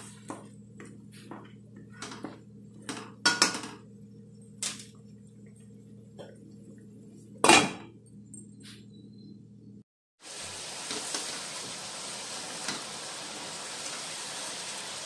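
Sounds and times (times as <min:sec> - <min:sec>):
steady low hum: 0:00.0 - 0:09.8.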